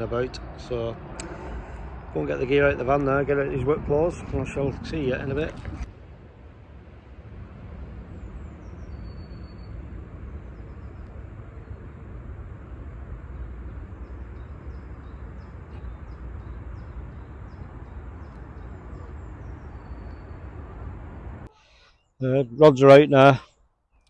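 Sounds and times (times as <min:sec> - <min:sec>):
low outdoor rumble: 0:00.0 - 0:21.5
small birds chirping: 0:08.1 - 0:24.0.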